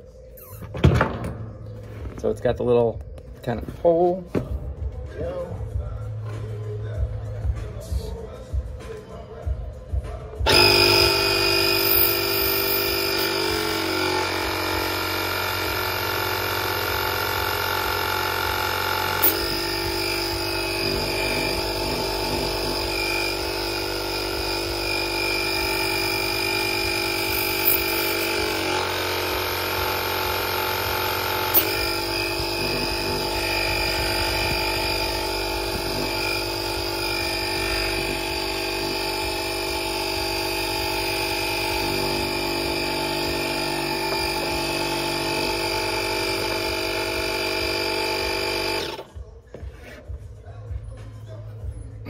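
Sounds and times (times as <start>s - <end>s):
air compressor humming: 10.4s - 49.2s.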